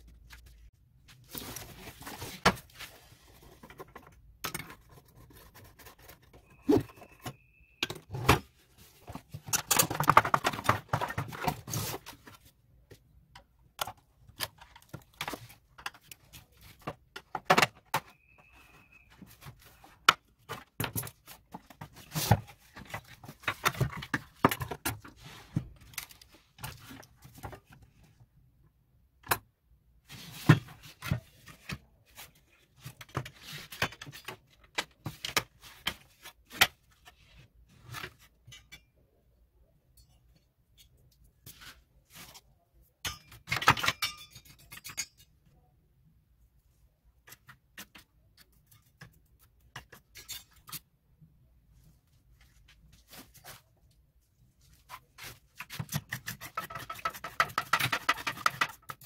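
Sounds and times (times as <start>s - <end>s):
plastic parts clicking and rattling: 3.3s - 18.2s, 19.4s - 28.2s, 43.1s - 45.3s.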